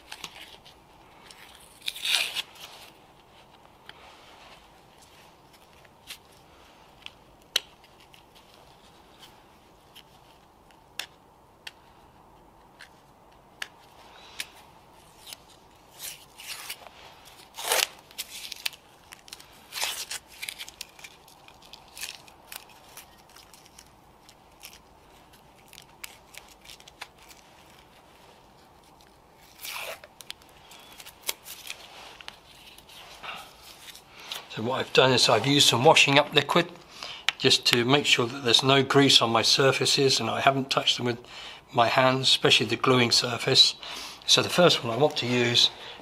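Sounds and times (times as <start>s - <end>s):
masking tape peeling: 0.0s - 3.0s, 13.6s - 34.4s.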